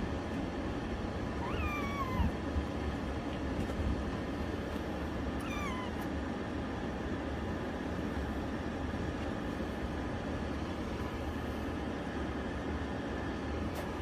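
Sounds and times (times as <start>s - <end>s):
low background rumble: 0.0s - 14.0s
kitten meow: 1.3s - 2.4s, 5.4s - 6.1s.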